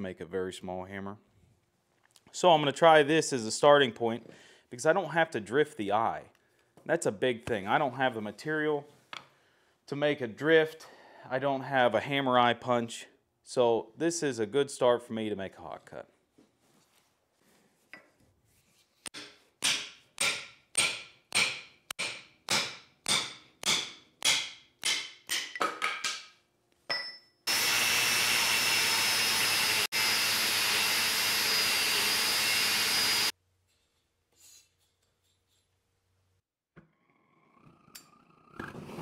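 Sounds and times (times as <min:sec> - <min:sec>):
hammer striking steel punch: 0:19.1 - 0:26.2.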